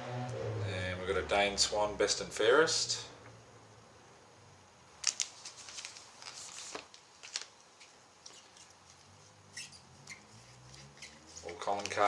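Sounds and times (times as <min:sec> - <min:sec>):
cards rustling: 0:05.0 - 0:09.3, 0:10.1 - 0:12.0.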